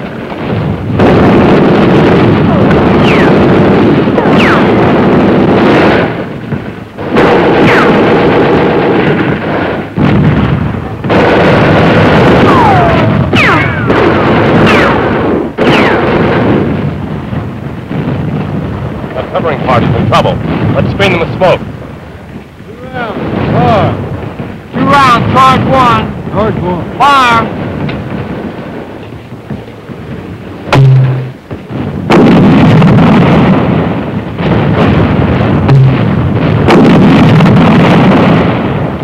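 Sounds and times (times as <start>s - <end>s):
small-arms gunfire: 0.0s - 6.3s, 7.0s - 16.9s, 29.6s - 39.0s
falling whistles: 3.0s - 3.4s.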